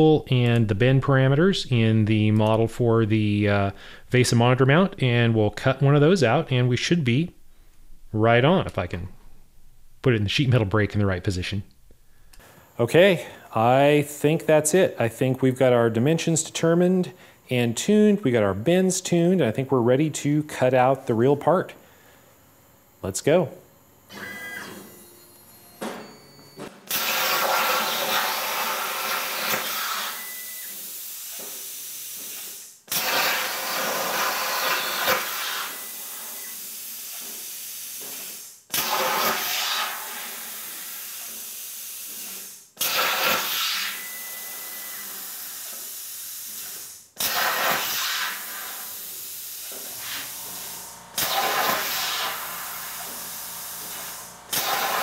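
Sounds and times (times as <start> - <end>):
plasma cutter hissing: 26.9 - 55.0.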